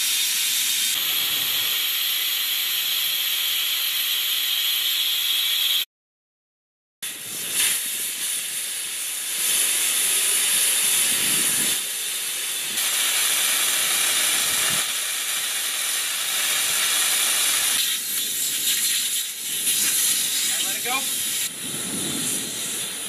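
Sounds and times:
air hissing from tire valve: 0:00.0 - 0:05.8, 0:07.0 - 0:23.0.

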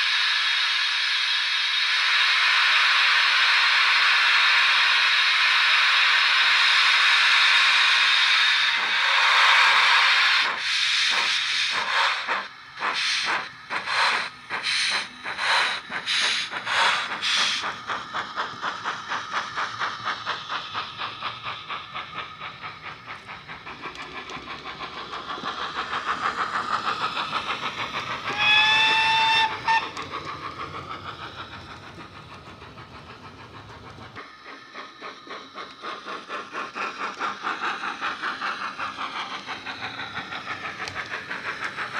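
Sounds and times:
locomotive exhaust chuffs: 0:00.0 - 0:41.9
steam hiss: 0:00.0 - 0:41.9
steam whistle blast: 0:28.3 - 0:29.9.

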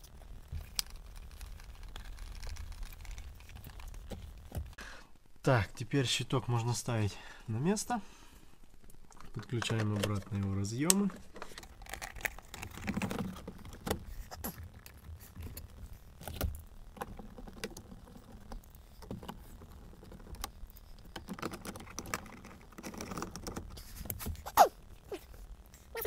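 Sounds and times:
plastic clicks and rattles: 0:09.1 - 0:14.2, 0:14.8 - 0:24.3.

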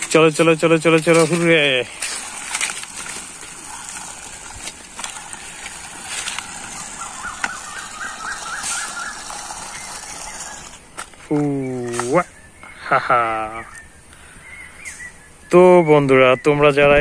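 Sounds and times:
toy train wheels scraping on wall: 0:00.0 - 0:12.2
steady high hiss: 0:00.0 - 0:16.8.

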